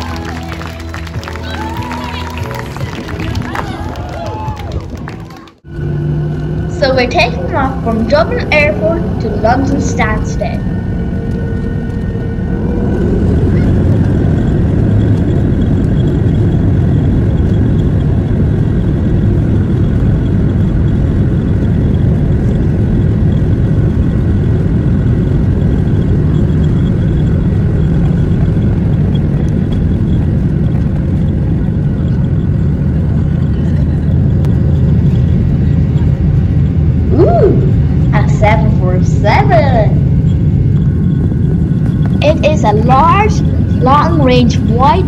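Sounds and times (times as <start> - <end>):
high whine of engine fans: 0.0 - 45.0
jet engines rumbling: 0.0 - 45.0
wheels on runway: 0.0 - 45.0.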